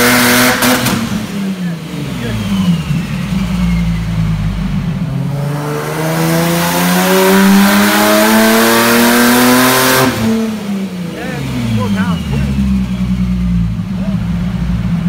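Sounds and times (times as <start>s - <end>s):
car engine revving at full throttle: 0.0s - 15.0s.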